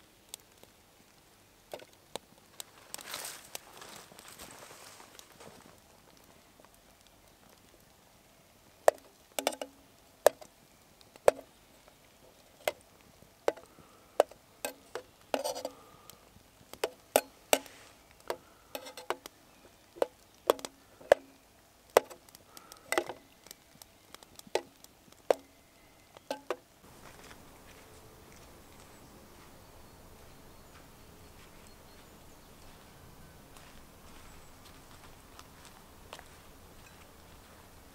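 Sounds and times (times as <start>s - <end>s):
spoon scraping pot: 14.6s - 15.8s, 16.8s - 19.3s
metal spoon clinking on pot: 18.8s - 19.2s.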